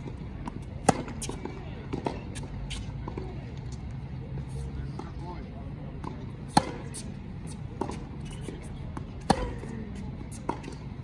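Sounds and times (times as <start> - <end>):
racket hitting tennis ball: 0.0 - 3.4, 6.0 - 11.0
tennis ball bouncing: 0.0 - 5.4, 6.0 - 11.0.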